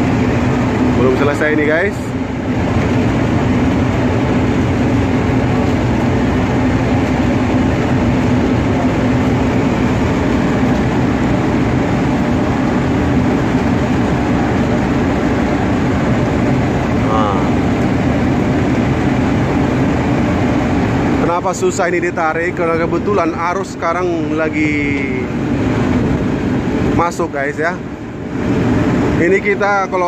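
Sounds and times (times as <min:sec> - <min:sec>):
ship machinery rumbling: 0:00.0 - 0:30.0.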